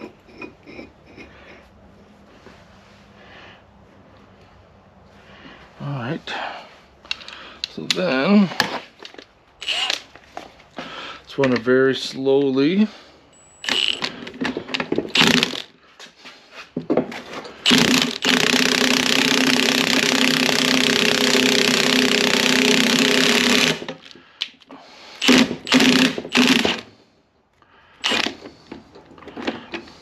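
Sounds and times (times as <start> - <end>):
impact wrench hammering: 17.7 - 23.9, 25.2 - 26.8.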